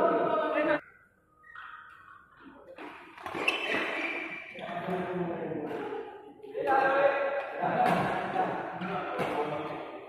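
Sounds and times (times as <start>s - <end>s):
loud voices: 0.0s - 0.8s, 3.6s - 9.9s
court shoes squeaking: 0.8s - 4.9s.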